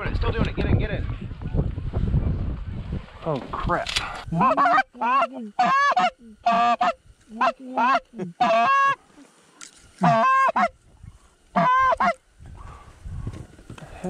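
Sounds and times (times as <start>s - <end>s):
goose call honking: 4.3s - 9.0s, 10.0s - 10.8s, 11.5s - 12.2s.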